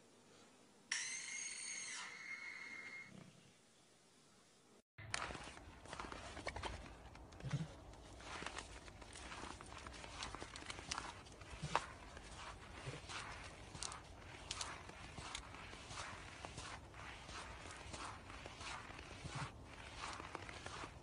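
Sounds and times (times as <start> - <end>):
footsteps crunching on snow: 5.0 - 21.0.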